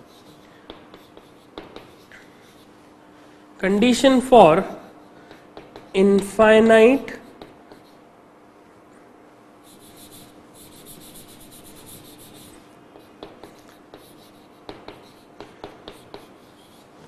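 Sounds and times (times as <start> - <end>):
chalk tapping on board: 0.0 - 2.7, 4.7 - 8.0, 9.7 - 17.0
chalk scratching on chalkboard: 0.0 - 2.9, 4.4 - 6.2, 7.0 - 8.1, 9.6 - 17.0.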